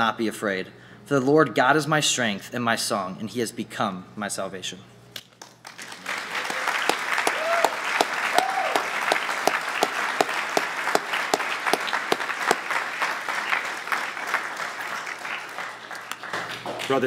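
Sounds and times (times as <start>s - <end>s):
congregation applauding: 5.4s - 17.0s
person cheering: 6.2s - 9.2s.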